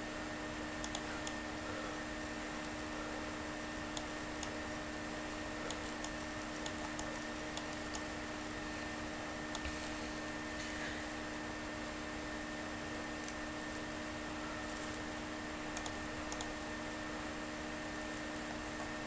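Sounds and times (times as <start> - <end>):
low computer hum: 0.0 - 19.0
computer mouse button clicking: 15.8 - 16.5.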